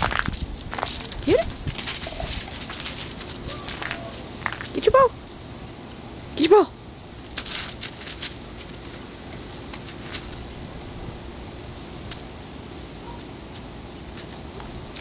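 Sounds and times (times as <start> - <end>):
dog stepping on icy snow: 0.0 - 4.8
steady hiss: 0.0 - 15.0.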